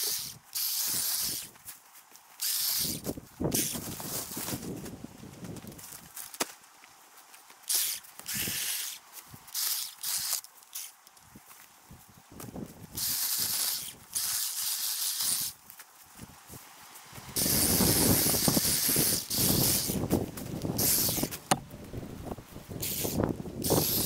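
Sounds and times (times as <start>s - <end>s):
short bursts of hissing air: 0.0s - 1.5s, 2.4s - 4.5s, 7.7s - 10.9s, 12.9s - 15.6s, 17.4s - 21.6s, 22.7s - 24.0s.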